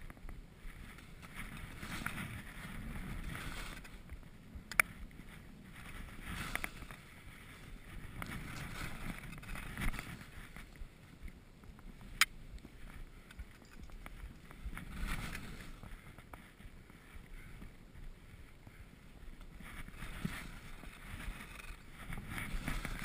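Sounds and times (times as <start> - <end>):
skis hissing through snow: 0.7 - 4.0, 5.2 - 10.6, 14.6 - 17.1.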